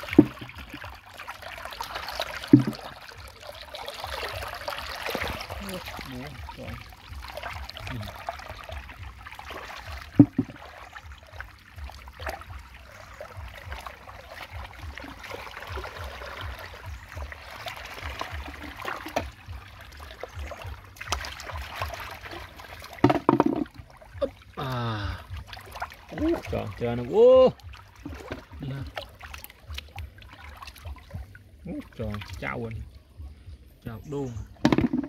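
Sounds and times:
sharp splash: 0.0s - 24.0s
sloshing through water: 0.0s - 35.0s
stream water trickling: 0.0s - 35.0s.

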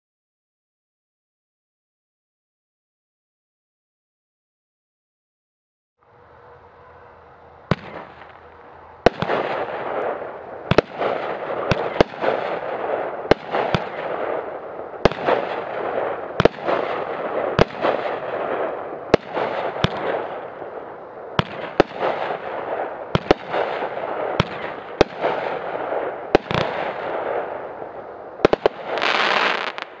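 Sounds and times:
firework bangs: 7.7s - 30.0s
firework crackling: 7.7s - 30.0s
firework hissing: 28.4s - 30.0s.

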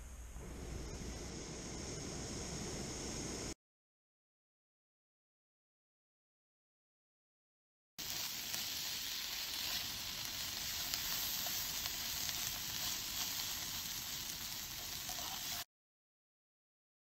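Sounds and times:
sausage sizzling in a pot: 8.0s - 15.7s.

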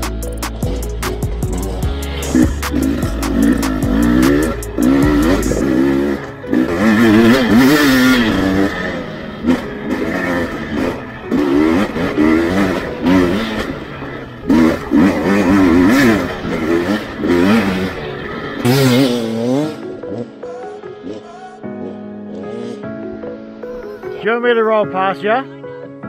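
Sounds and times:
dirt bike engine revving: 0.0s - 20.4s.

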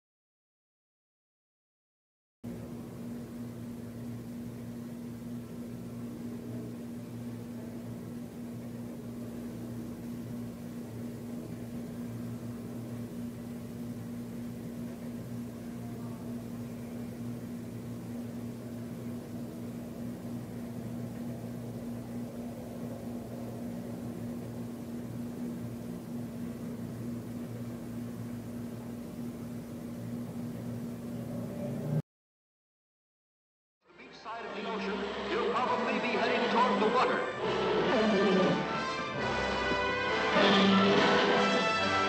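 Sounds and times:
low electrical hum: 2.5s - 32.0s, 33.9s - 42.0s.

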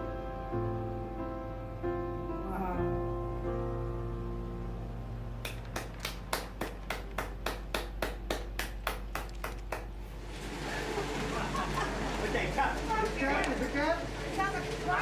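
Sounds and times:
person clapping: 5.4s - 10.0s.

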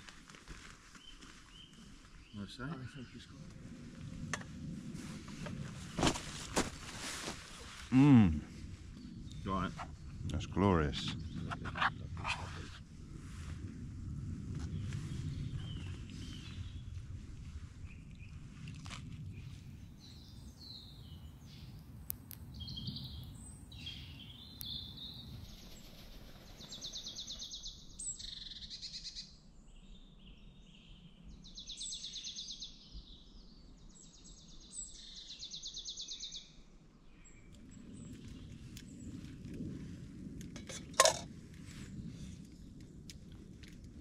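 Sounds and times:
songbirds singing: 0.9s - 3.6s, 8.8s - 12.8s, 14.7s - 17.2s, 19.2s - 39.7s.

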